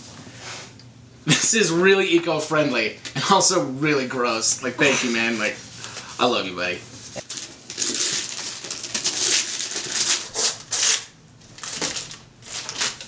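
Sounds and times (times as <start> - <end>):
wrapping paper tearing: 7.2 - 13.0.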